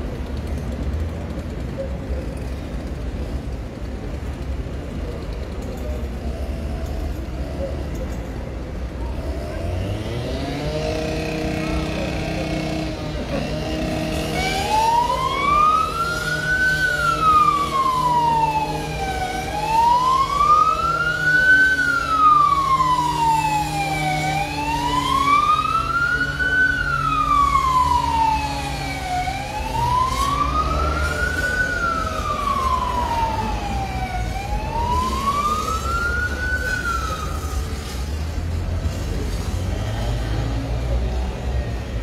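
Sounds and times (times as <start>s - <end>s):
emergency siren wailing: 9.6s - 38.9s.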